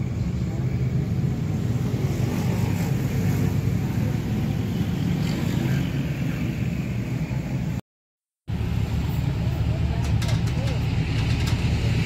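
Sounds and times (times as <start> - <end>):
vehicle engine rumble: 8.5 - 12.0.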